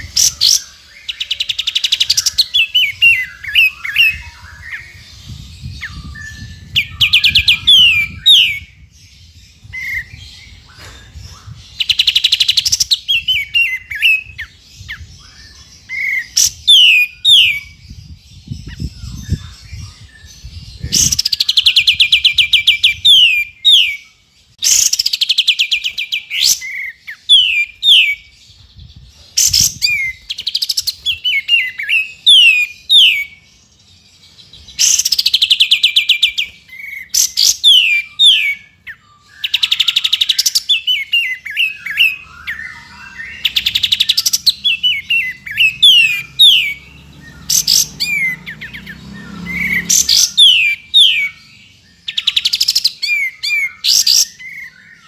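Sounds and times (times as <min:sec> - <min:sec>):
bulbul chattering trills: 0:39.4 - 0:54.8.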